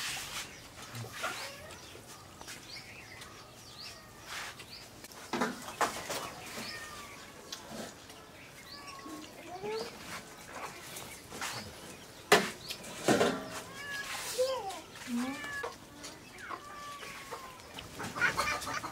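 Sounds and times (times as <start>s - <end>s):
birds chirping: 0.0s - 18.9s
cat meowing: 13.5s - 14.4s, 16.4s - 17.6s.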